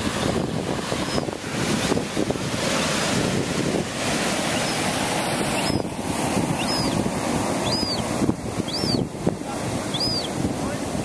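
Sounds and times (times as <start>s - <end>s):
surf breaking against cliff: 0.0s - 11.0s
wind buffeting microphone: 0.0s - 11.0s
gull high thin peeps: 1.0s - 1.3s, 4.5s - 10.4s.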